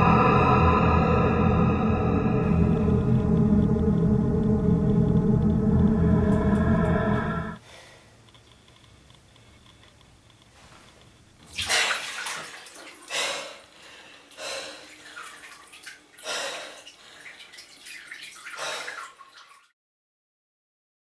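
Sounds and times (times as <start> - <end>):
bath water sloshing and splashing: 11.4 - 19.7.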